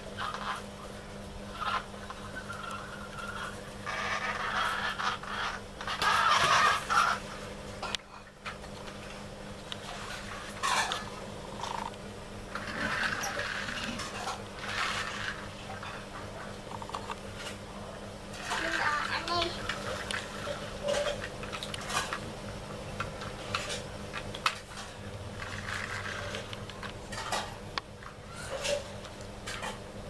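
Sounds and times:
toy trucks rattling on tiles: 0:12.5 - 0:15.5, 0:24.4 - 0:26.5.

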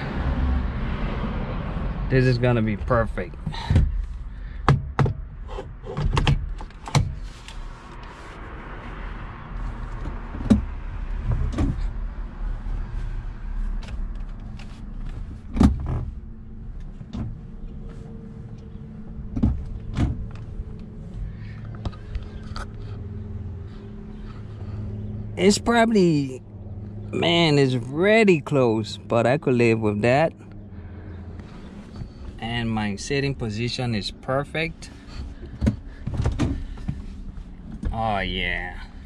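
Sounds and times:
knocks and clicks in car: 0:03.4 - 0:07.2, 0:10.0 - 0:11.9, 0:19.3 - 0:20.5, 0:35.5 - 0:37.1.

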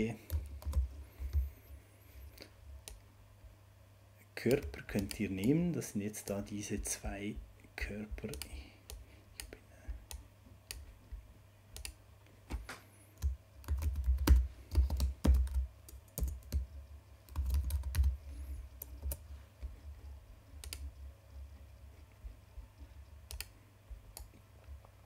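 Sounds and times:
keyboard typing: 0:00.0 - 0:03.0, 0:04.4 - 0:07.0, 0:08.1 - 0:12.0, 0:13.2 - 0:24.4.

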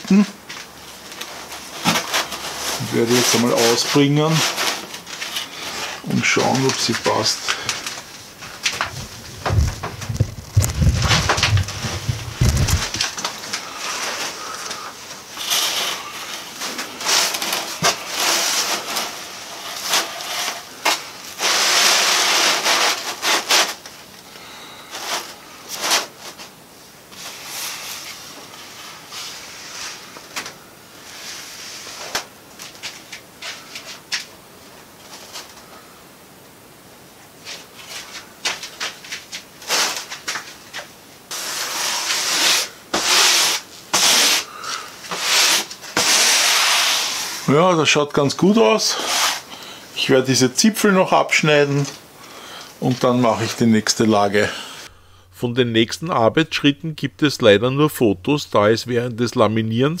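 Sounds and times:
cloth rustling and swishing: 0:00.4 - 0:23.8.

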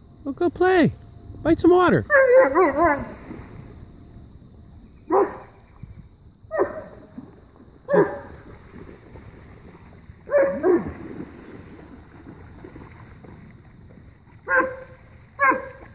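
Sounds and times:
dog barking: 0:02.1 - 0:03.1, 0:05.1 - 0:05.5, 0:06.5 - 0:06.9, 0:07.9 - 0:08.3, 0:10.3 - 0:10.9, 0:14.5 - 0:15.8.

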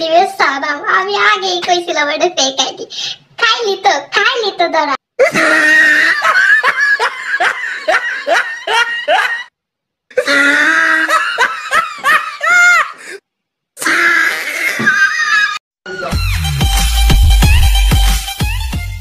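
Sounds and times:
high-pitched laughter: 0:05.2 - 0:09.5, 0:13.9 - 0:15.6.

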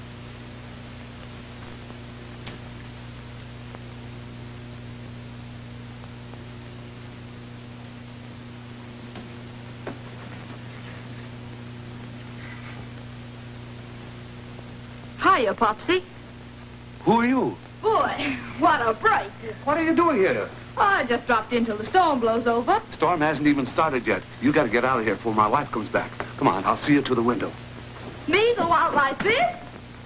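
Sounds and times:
mains hum and hiss: 0:00.0 - 0:30.0.

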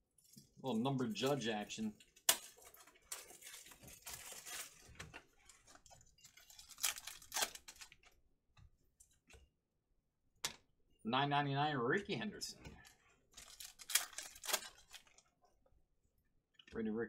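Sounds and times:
cards shuffling: 0:02.3 - 0:08.0, 0:12.8 - 0:15.2
foil wrapper tearing and crinkling: 0:02.3 - 0:08.0, 0:13.4 - 0:15.2.

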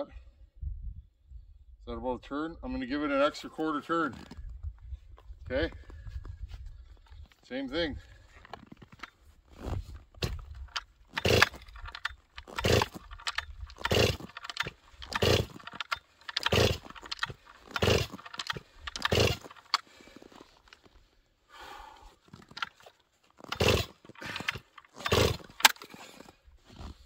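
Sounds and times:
chainsaw starter rope yanks: 0:08.4 - 0:21.0, 0:22.2 - 0:27.0
engine turning over whirr: 0:10.2 - 0:20.3, 0:23.4 - 0:26.0.

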